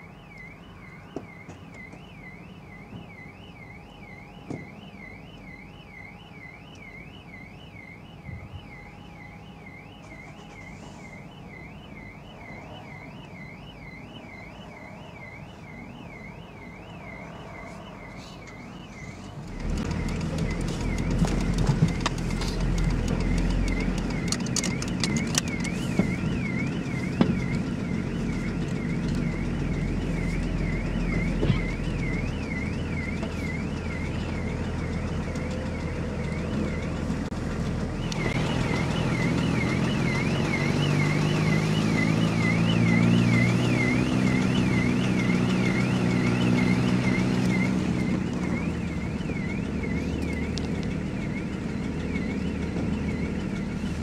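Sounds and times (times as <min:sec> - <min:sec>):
electronic alarm warbling: 0:00.0 - 0:54.0
car engine from inside cabin: 0:18.0 - 0:54.0.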